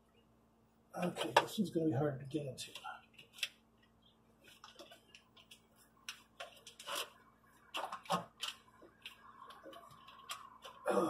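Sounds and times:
hand rustling among cables: 2.6s - 10.9s.

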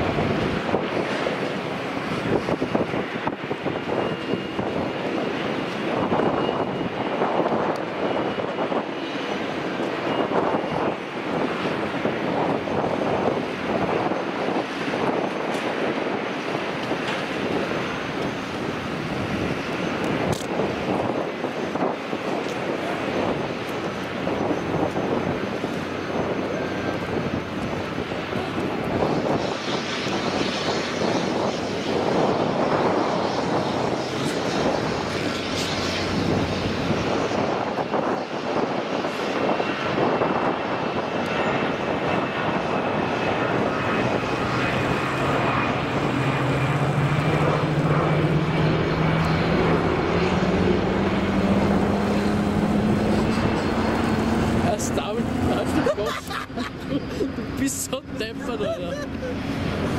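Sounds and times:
jet engine rushing: 0.0s - 59.9s
engine spooling up: 42.9s - 59.9s.

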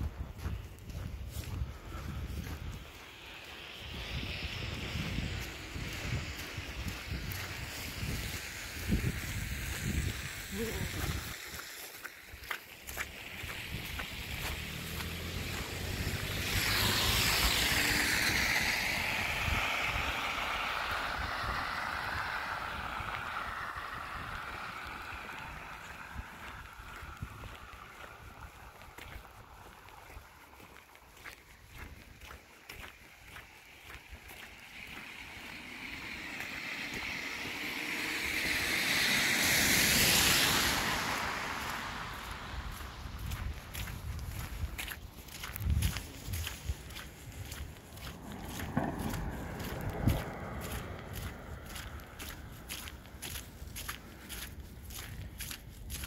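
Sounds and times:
car passing on wet road: 0.0s - 56.0s
tyres hissing on slush: 0.6s - 56.0s.

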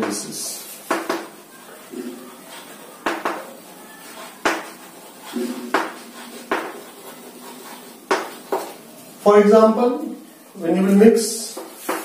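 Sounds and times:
chalk tapping and scratching: 2.4s - 8.8s, 11.5s - 12.0s.

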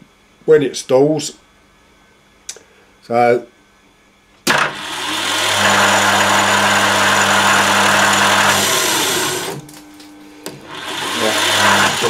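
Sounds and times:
lathe tool cutting: 4.5s - 9.6s, 10.6s - 12.0s
lathe motor humming: 4.5s - 9.7s, 10.4s - 12.0s.

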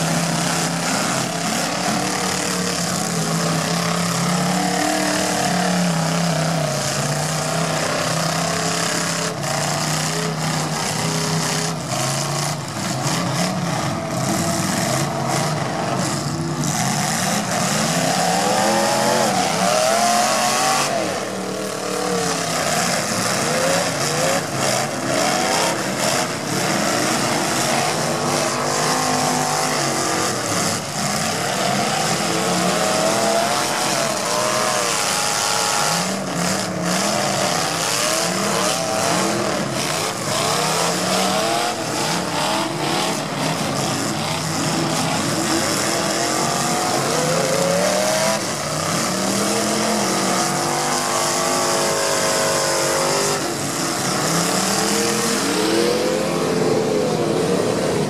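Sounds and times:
car engines revving hard: 0.0s - 58.0s.

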